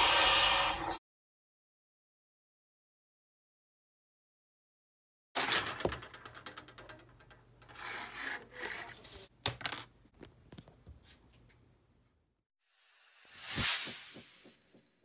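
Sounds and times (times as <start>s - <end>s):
wire scraping on wooden desk: 5.8s - 9.3s.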